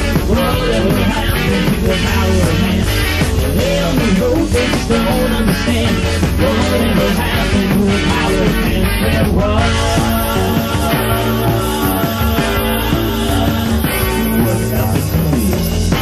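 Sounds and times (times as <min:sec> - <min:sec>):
new-wave rock band playing: 0:00.0 - 0:16.0.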